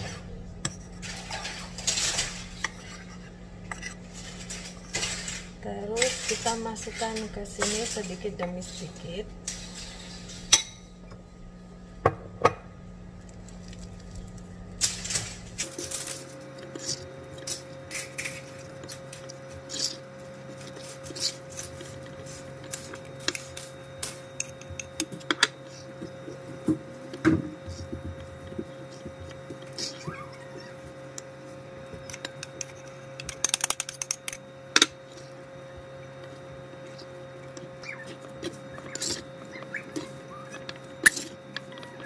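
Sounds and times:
steady low hum: 0.0 - 42.0
fork scraping ceramic bowl: 19.2 - 23.4.

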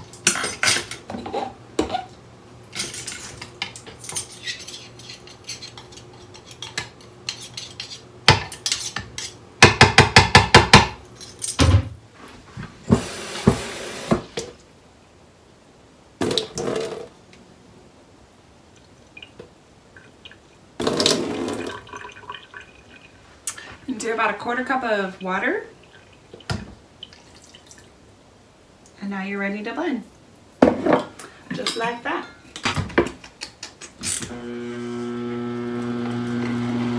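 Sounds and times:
knife scraping glass bowl: 4.2 - 8.0
water pouring into bowl: 21.0 - 23.2.

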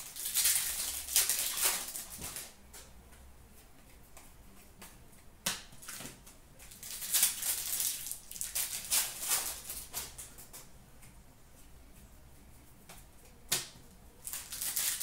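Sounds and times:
cards and wrapper rustling: 0.0 - 2.6, 6.7 - 10.2, 14.2 - 15.0.

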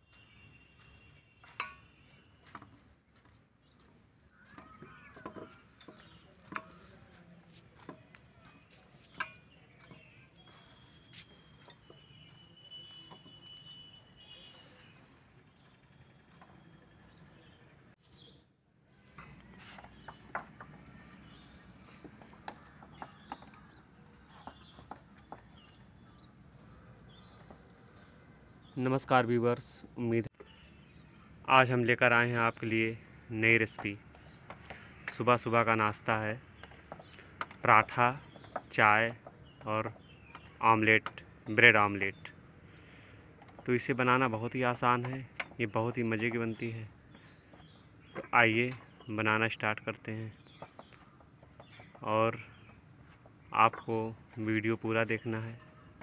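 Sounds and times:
steel plate clinking: 1.5 - 2.0
faint bird chirps: 3.7 - 6.9, 8.4 - 18.5.

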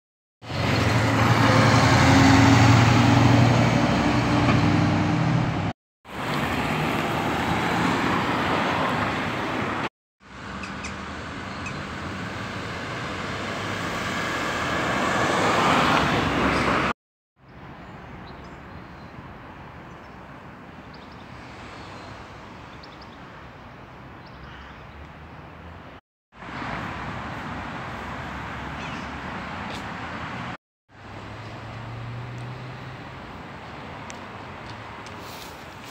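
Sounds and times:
vehicle approaching: 0.4 - 16.9, 29.4 - 33.5
cars driving past: 0.4 - 17.0, 25.1 - 35.9
background traffic: 0.4 - 35.9.

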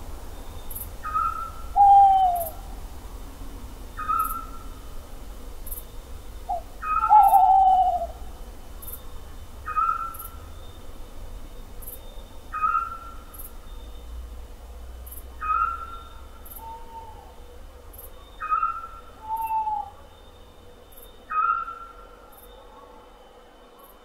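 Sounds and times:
short higher owl call: 1.0 - 2.6.

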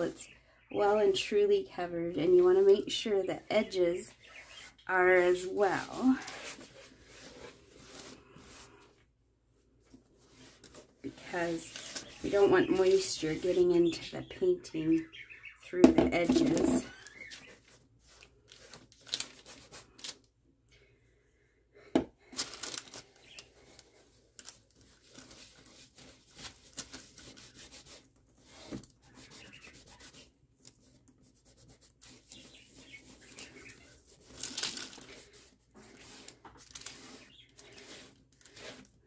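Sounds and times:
cloth rubbing on waxed paper: 3.2 - 8.9, 10.2 - 14.1, 24.9 - 39.0.

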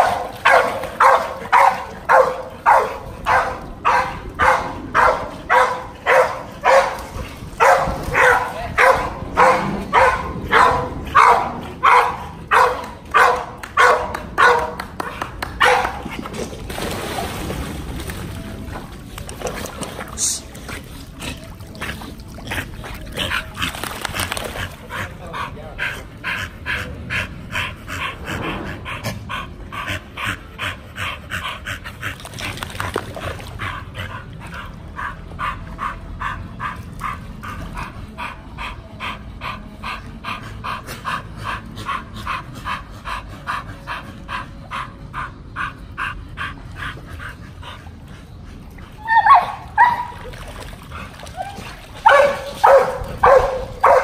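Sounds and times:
dog panting: 19.4 - 49.0.

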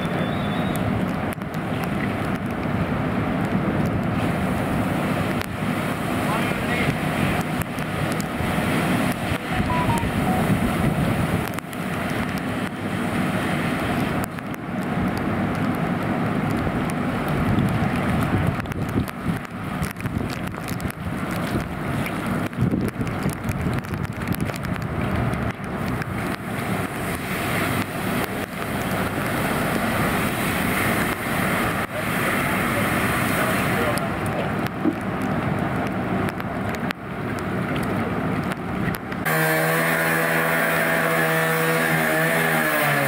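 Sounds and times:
fire crackling: 0.0 - 41.8
fire engine rumbling: 0.0 - 42.5
hose spraying water: 4.0 - 15.1, 25.8 - 34.6, 39.2 - 43.0.

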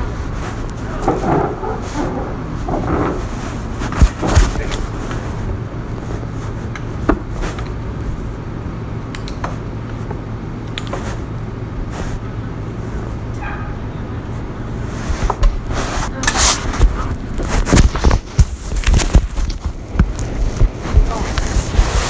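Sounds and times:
hum: 0.0 - 22.0
low mechanical rumble: 0.0 - 22.0
sharp clicks and knocks: 9.1 - 11.1.

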